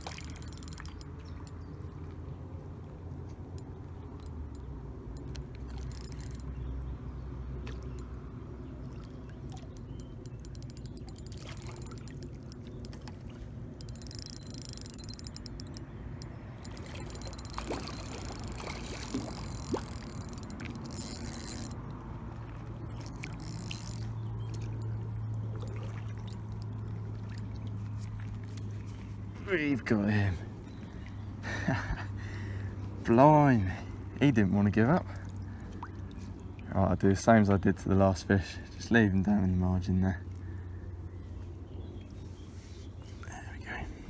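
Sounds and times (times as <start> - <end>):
water splashing: 0.0 - 1.4, 7.5 - 14.4, 15.5 - 29.5
fishing rod and reel handling: 0.0 - 6.8, 9.0 - 29.5.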